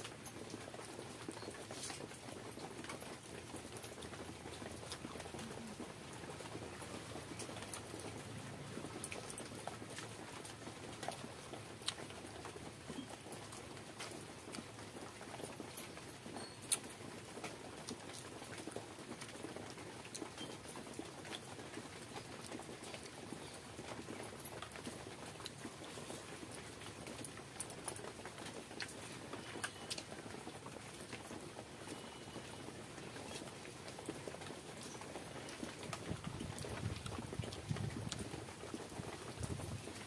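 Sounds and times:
person chewing and mouth smacks: 11.8 - 12.1.

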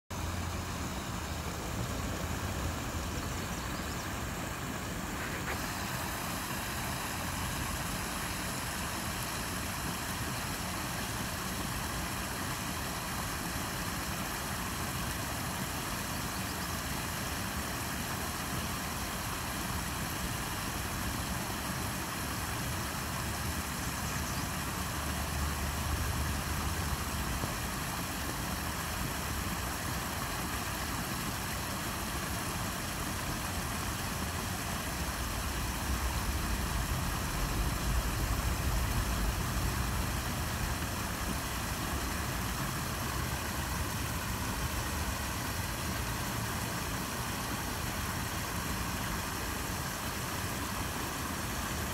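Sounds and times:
small waterfall rushing: 0.0 - 51.9
low rumble: 35.1 - 42.3.

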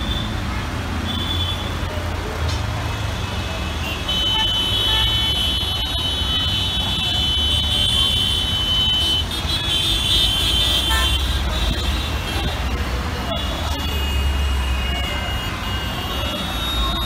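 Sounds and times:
traffic engines rumbling: 0.0 - 17.0
vehicle horns honking: 1.0 - 1.8, 3.7 - 17.0.

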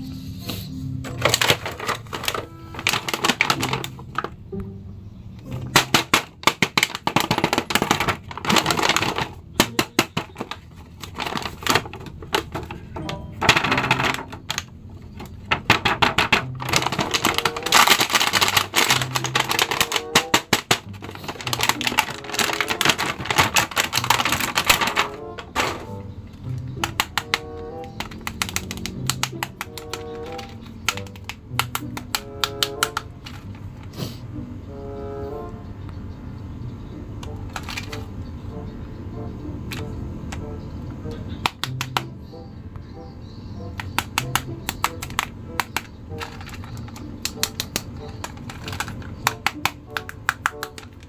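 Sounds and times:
background music: 0.0 - 51.0
plastic bag crinkling: 1.1 - 4.3, 5.8 - 26.0, 26.8 - 31.9.

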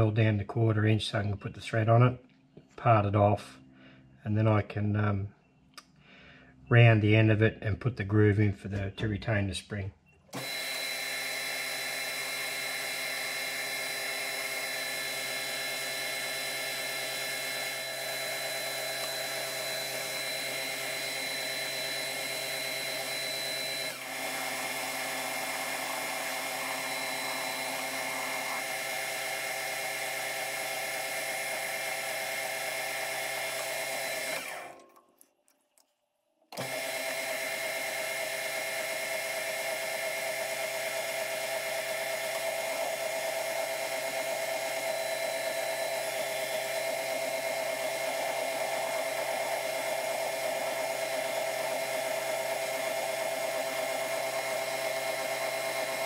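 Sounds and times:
metal lathe whine: 10.4 - 34.7, 36.6 - 56.0.

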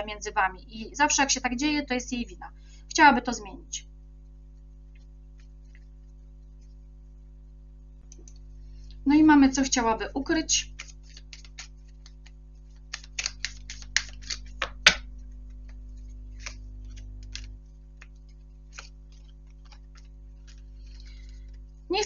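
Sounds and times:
faint steady hum: 0.0 - 22.0
cards clicking on a table: 10.8 - 21.4.

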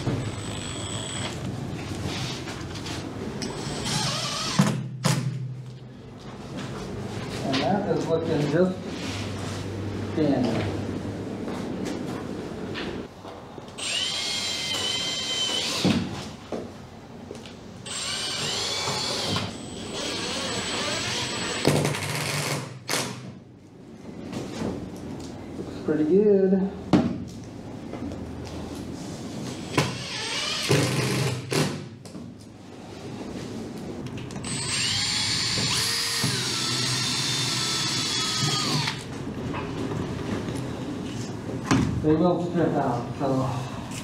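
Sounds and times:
cordless drill whining: 0.2 - 1.4, 3.4 - 4.6, 13.8 - 15.8, 17.9 - 22.2, 34.4 - 39.0.

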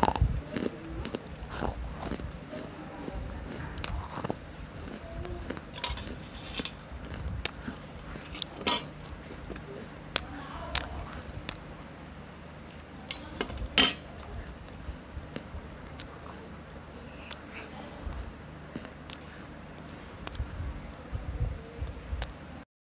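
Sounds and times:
biting and chewing: 0.0 - 11.6, 18.1 - 20.8
cutlery clicks: 5.8 - 6.8, 8.2 - 9.1, 13.1 - 14.3.

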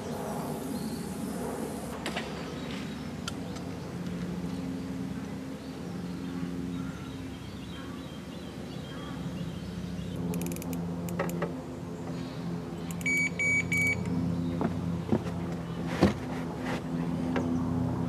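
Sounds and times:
low drone: 0.0 - 18.0
sharp clicks: 10.3 - 11.5
bite alarm beeping: 13.0 - 14.1.

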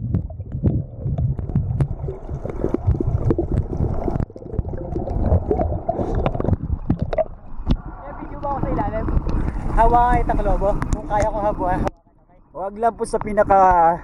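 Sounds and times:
underwater rumble and gurgling: 0.0 - 12.0
swimmers splashing clicks and knocks: 0.1 - 7.9.

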